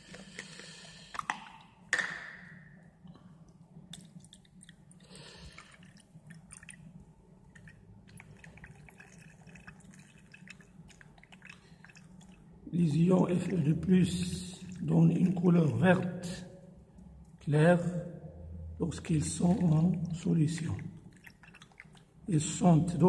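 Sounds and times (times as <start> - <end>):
water trickling and dripping: 3.1 - 15.8, 19.4 - 22.3.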